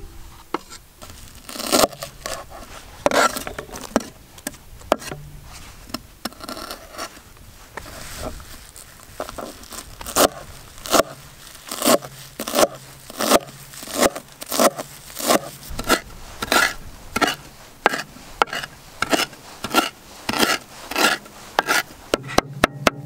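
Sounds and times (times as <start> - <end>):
knife chopping on wooden board: 11.8 - 23.0.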